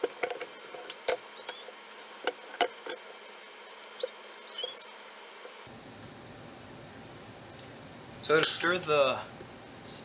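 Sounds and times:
high squeaky chirps: 0.0 - 5.7.

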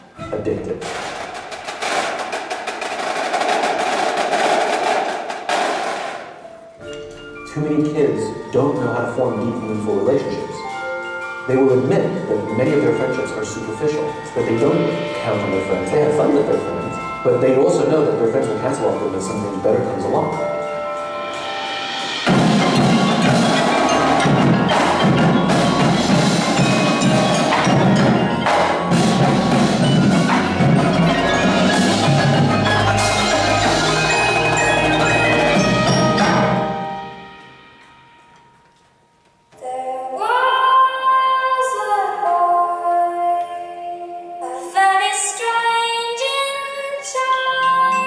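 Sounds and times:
marching drums and cymbals: 0.8 - 6.5, 20.6 - 37.7
marimbas and vibraphones: 6.3 - 40.4, 47.2 - 48.0.

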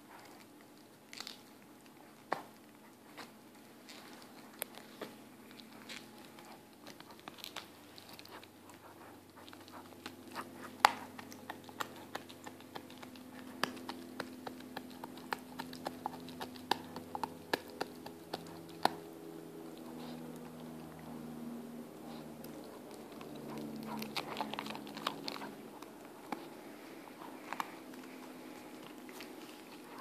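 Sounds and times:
puppy gnawing a bone: 0.0 - 30.0.

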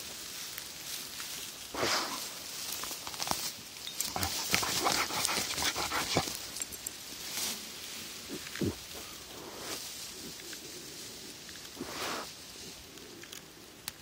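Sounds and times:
dog pushing through grass: 0.0 - 10.5.

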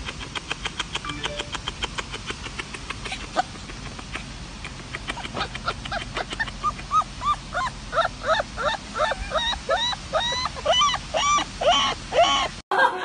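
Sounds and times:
puppy whimpering: 5.2 - 12.5.

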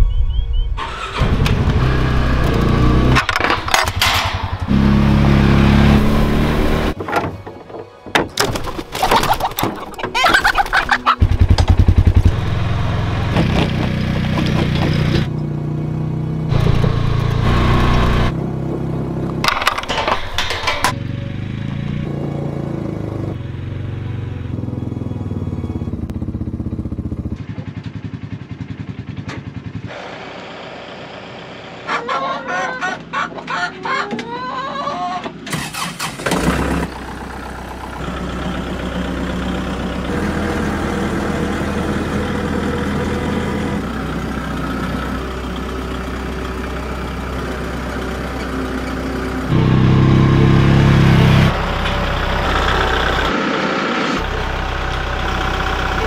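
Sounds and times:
chickens clucking: 8.6 - 11.3, 31.8 - 35.4
atv engine running: 11.0 - 19.8, 20.5 - 32.0, 35.7 - 53.5, 54.2 - 56.0.

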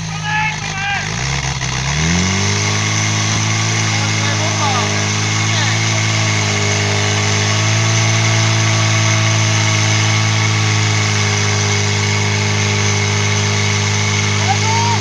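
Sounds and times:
pump engine running: 0.0 - 15.0.

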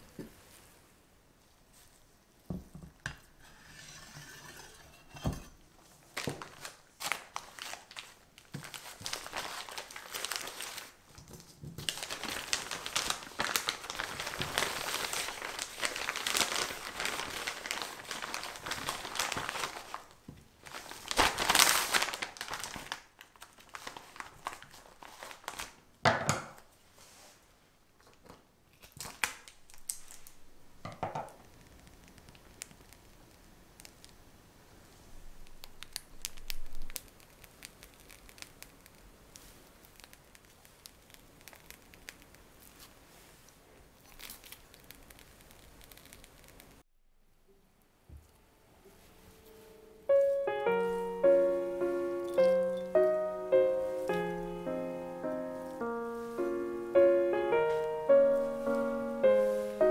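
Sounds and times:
plastic piping bag crinkling: 6.0 - 25.9, 28.8 - 34.4, 35.1 - 46.8, 50.1 - 59.9.

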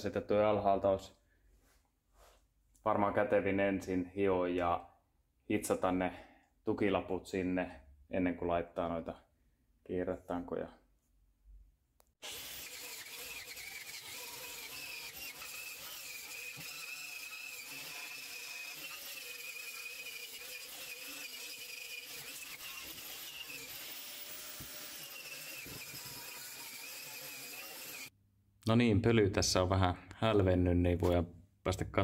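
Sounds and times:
angle grinder on sheet metal: 12.2 - 28.1.

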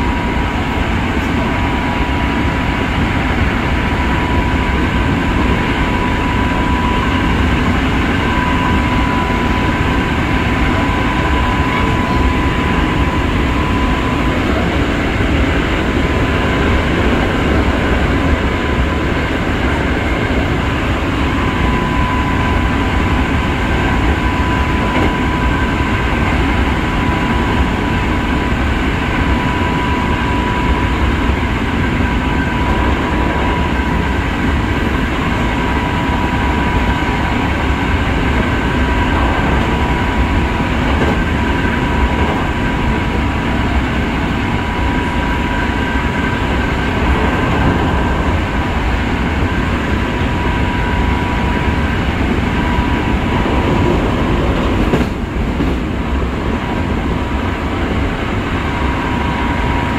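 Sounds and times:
high steady whine: 0.0 - 59.9
train wheels rumbling: 0.0 - 59.9.

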